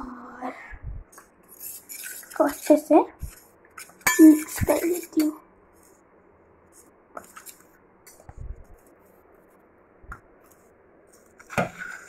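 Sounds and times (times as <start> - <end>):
spoon scraping steel bowl: 1.4 - 5.4.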